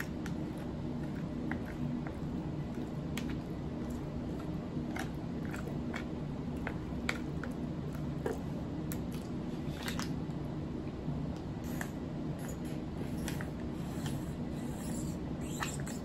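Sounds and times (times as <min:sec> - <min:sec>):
close chewing: 0:00.0 - 0:10.2.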